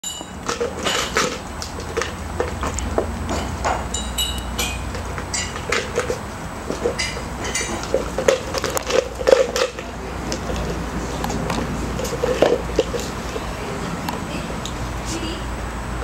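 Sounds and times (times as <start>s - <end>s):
kibble clinking in metal bowl: 0.0s - 2.6s, 3.3s - 6.2s, 6.8s - 10.8s.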